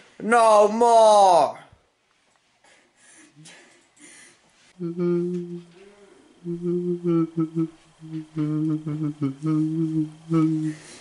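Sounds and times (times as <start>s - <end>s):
person humming low note: 4.8s - 11.0s.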